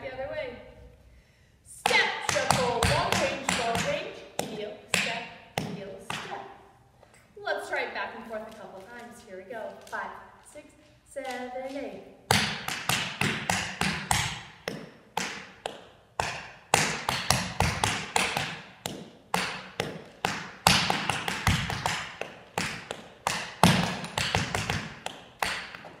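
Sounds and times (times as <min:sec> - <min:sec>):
tap shoes on wooden floor: 0:01.9 - 0:06.4, 0:11.2 - 0:26.0.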